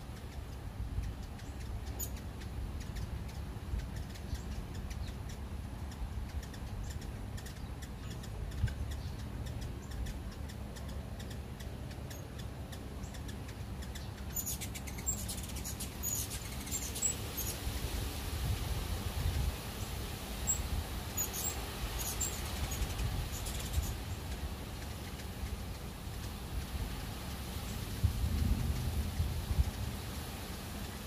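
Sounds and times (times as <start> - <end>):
hummingbird chip notes: 0.1 - 17.6
low rumble: 27.7 - 30.4.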